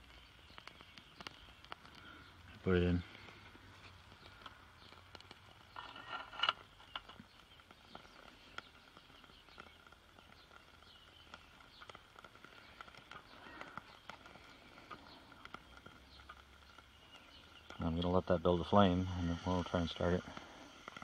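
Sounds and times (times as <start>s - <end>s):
small ticks and chirps: 0.0s - 21.0s
fuel tray scraping into metal firebox: 5.7s - 7.1s.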